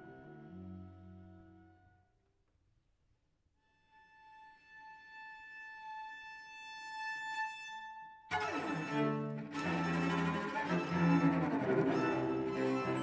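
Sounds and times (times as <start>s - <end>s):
cellos playing low notes: 8.3s - 13.0s.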